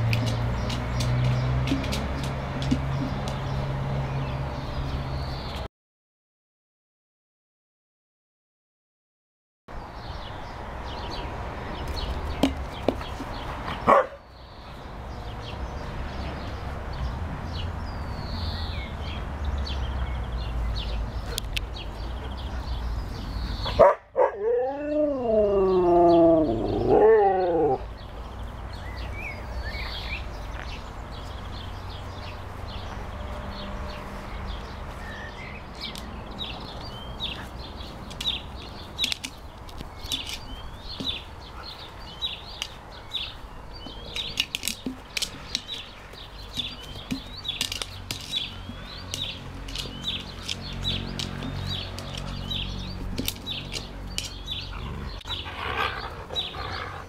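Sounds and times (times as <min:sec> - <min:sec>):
husky howling call: 0:24.2 - 0:27.8.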